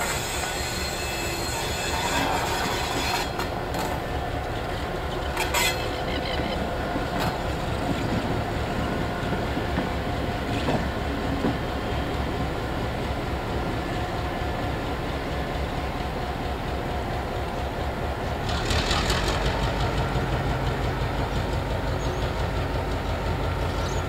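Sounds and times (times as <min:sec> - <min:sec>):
wheels clanking over rail joints: 0:00.0 - 0:15.9.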